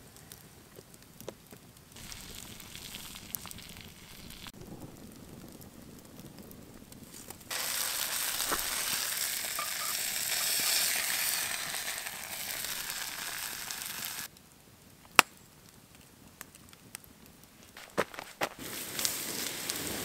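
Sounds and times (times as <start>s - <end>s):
egg sizzling in frying pan: 2.0s - 4.6s, 7.0s - 14.3s.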